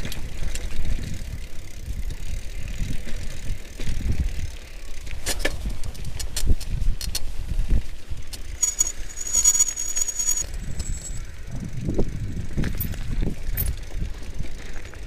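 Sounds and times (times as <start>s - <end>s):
bike rattling clicks: 0.0s - 15.0s
tyres rumbling on gravel: 7.3s - 15.0s
high brake squeal: 8.6s - 10.5s.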